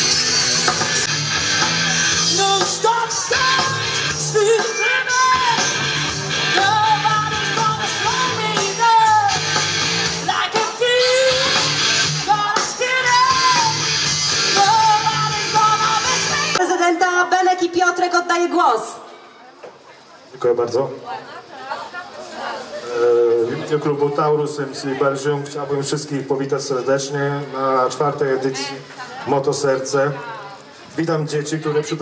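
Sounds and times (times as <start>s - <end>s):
rock song with singing: 0.0s - 17.5s.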